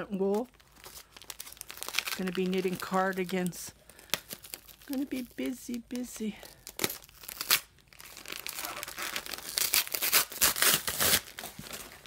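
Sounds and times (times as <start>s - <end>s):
plastic wrapping crinkling: 0.0s - 12.0s
cardboard box tearing: 8.4s - 11.8s.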